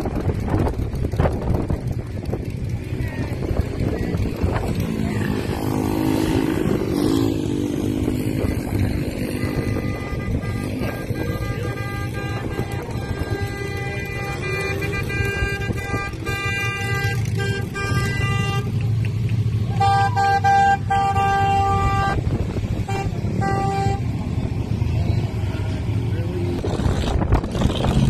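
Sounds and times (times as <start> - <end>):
truck engines running: 0.0 - 28.0
vehicle horns honking: 2.8 - 26.0.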